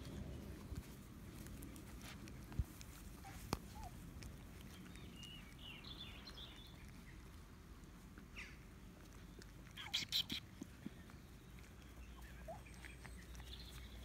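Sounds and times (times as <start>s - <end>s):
steady low rumble: 0.0s - 9.9s.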